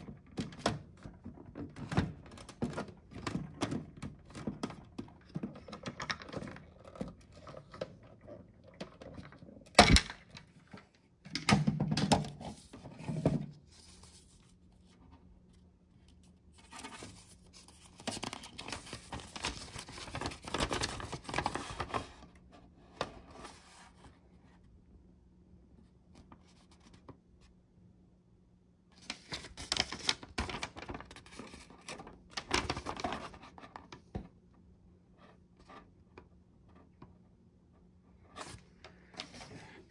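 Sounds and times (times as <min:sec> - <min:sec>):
paper rustling and crackling: 0:16.1 - 0:22.2, 0:29.0 - 0:34.1.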